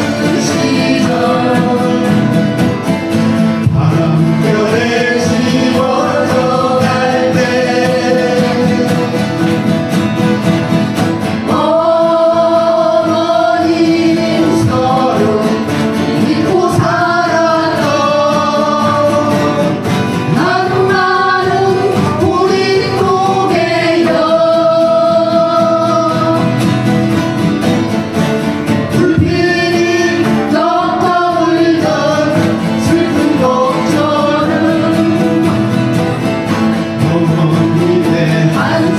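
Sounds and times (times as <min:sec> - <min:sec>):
people singing into microphones: 0:00.0 - 0:27.7, 0:28.4 - 0:38.9
acoustic guitars strumming: 0:00.0 - 0:38.9.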